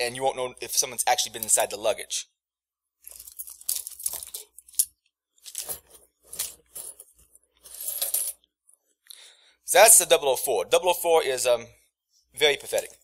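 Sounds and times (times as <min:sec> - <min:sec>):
metal lock and keys clinking: 0:03.0 - 0:07.1.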